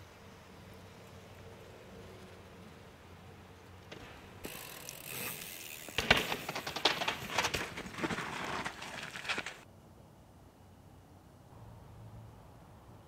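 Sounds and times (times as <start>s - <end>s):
bicycle tyre hiss: 0.0s - 9.6s
bike rattling over bumps: 3.6s - 9.6s.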